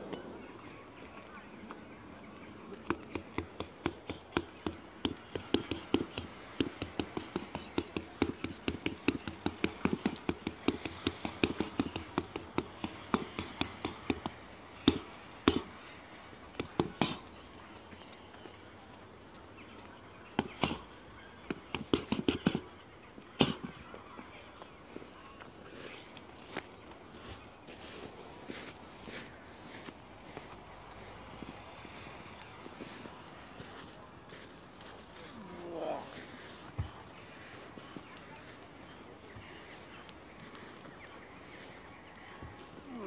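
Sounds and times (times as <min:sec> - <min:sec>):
fists hitting tyres: 0:21.5 - 0:22.7.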